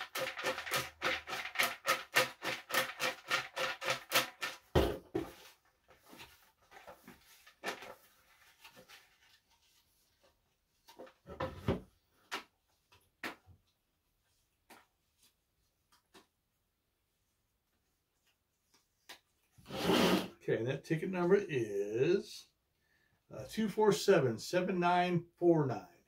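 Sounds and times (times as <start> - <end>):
hand stirring tickets: 0.0 - 4.7
tickets shaken in plastic bucket: 0.0 - 9.8
bucket thumping on table: 4.7 - 5.4.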